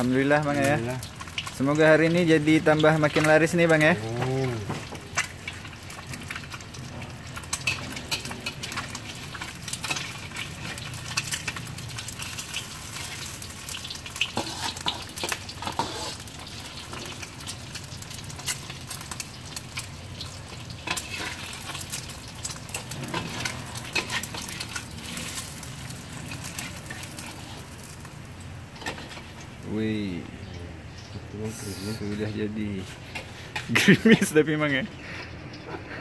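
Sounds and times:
egg sizzling in oil: 0.0 - 29.7
metal spatula scraping wok: 7.1 - 17.2, 20.6 - 28.1, 28.7 - 29.5, 32.8 - 33.8.

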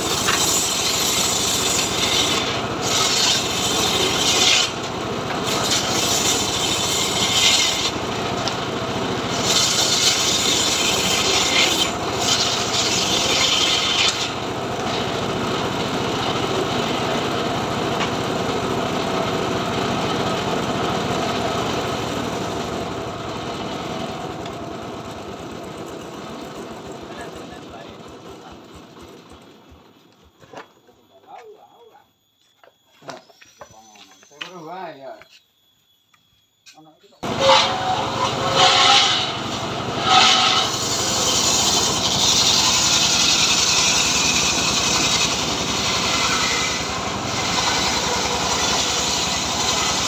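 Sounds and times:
circular saw cutting wood: 0.0 - 29.6, 37.2 - 50.0
saw blade spinning freely: 9.2 - 15.2, 37.2 - 50.0.

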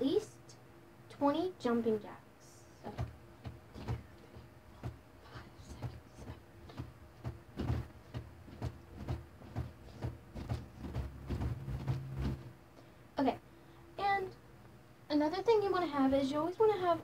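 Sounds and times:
feet thudding on floor: 2.9 - 12.5.

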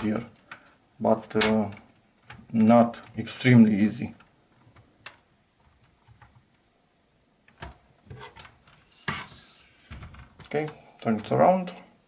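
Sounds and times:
handling scrape: 8.1 - 10.0.

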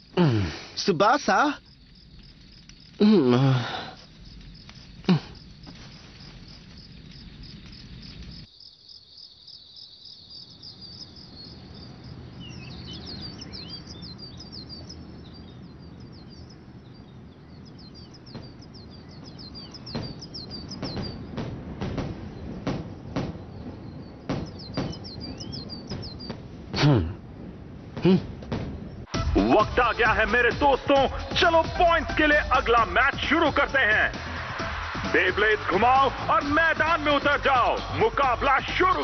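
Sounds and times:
crickets chirring: 0.0 - 34.1
birds chirping: 0.0 - 39.0
sharp knocks: 19.2 - 23.6, 24.2 - 26.4.

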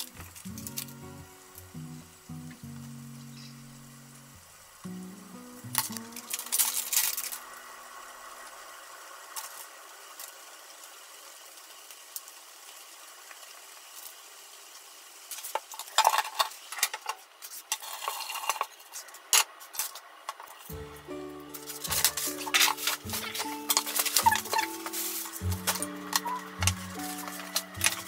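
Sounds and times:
spinach sizzling in a frying pan: 0.0 - 28.0
packaging handling: 21.4 - 28.0.

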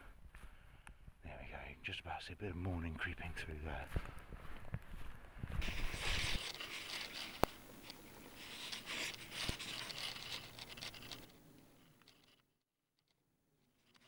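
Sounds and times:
footsteps through grass: 3.1 - 11.4.

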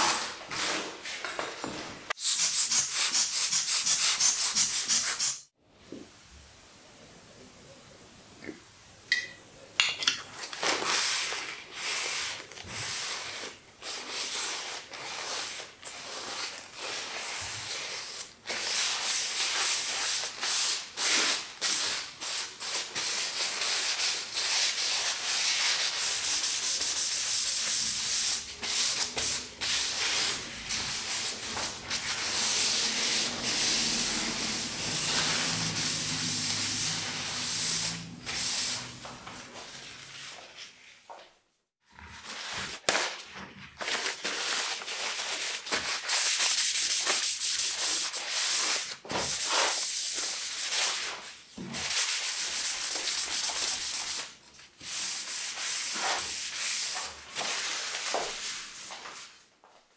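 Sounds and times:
paper towel scrubbing wood: 11.0 - 40.5, 44.3 - 59.2.

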